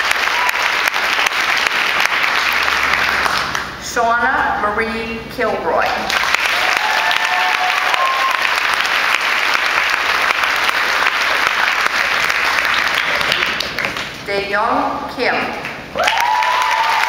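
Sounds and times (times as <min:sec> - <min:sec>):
audience applauding: 0:00.0 - 0:03.8, 0:06.1 - 0:14.2, 0:16.0 - 0:17.0.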